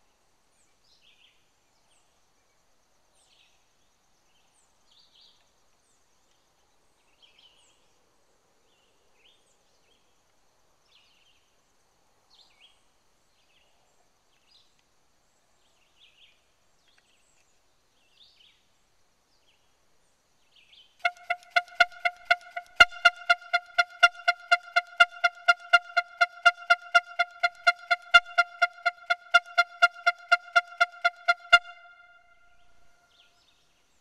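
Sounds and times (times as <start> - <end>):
loud stuttering pitched note: 21.0 - 33.0.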